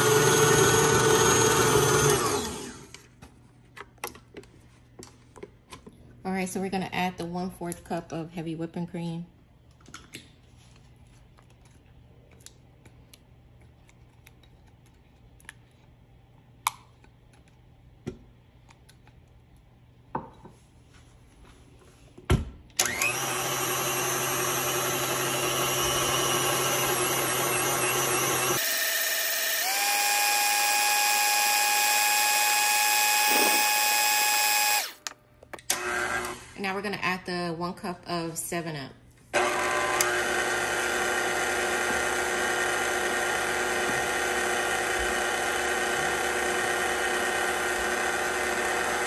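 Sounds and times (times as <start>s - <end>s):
stand mixer motor running: 0.0s - 3.0s, 22.8s - 35.0s, 39.4s - 49.0s.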